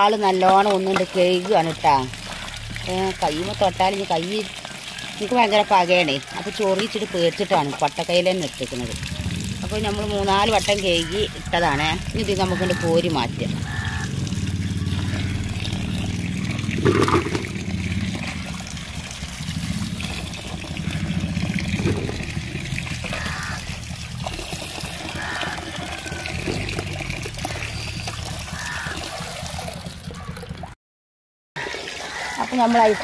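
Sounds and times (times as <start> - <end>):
water pouring into a metal pot: 0.0 - 30.8, 31.6 - 33.0.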